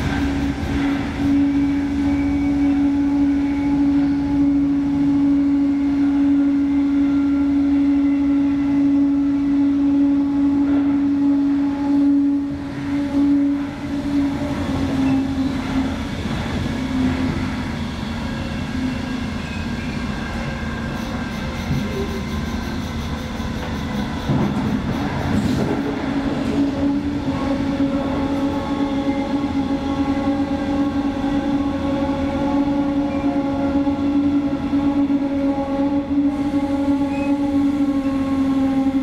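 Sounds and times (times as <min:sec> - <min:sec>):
humming tone: 0:00.0 - 0:17.6, 0:26.0 - 0:39.0
train wheels rumbling on rails: 0:00.0 - 0:39.0.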